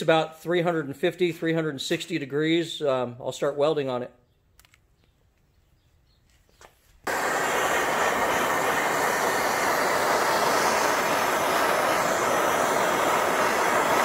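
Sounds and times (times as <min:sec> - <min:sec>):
gas torch flame hissing: 0:07.0 - 0:14.0.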